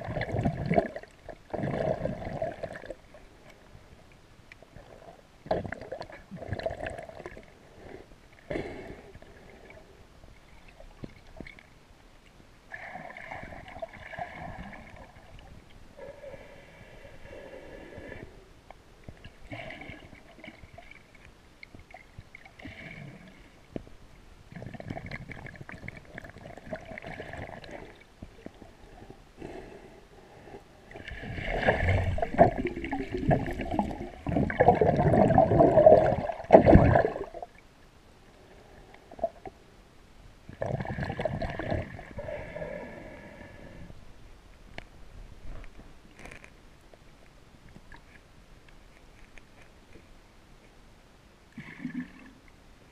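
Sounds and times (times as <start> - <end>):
muffled underwater gurgling water: 24.5 - 37.5.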